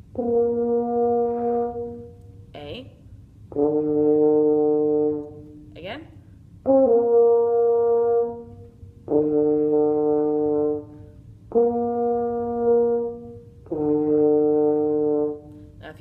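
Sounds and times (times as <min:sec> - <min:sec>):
french horn held notes: 0:00.0 - 0:02.8, 0:03.4 - 0:15.9.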